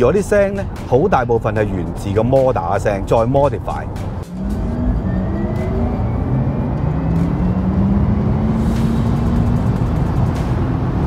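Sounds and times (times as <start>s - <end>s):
artificial car sound: 0.8s - 11.0s
tyre and road rumble: 4.1s - 11.0s.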